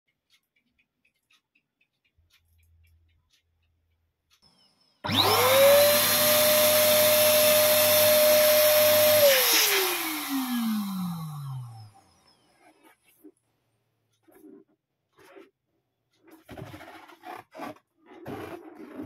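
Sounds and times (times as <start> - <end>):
balloon pump motor whining: 5.0 - 12.6.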